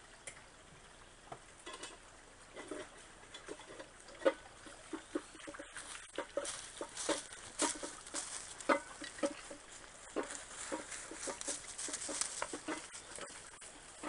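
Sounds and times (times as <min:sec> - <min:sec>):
footsteps crunching dry leaves: 0:05.8 - 0:14.0.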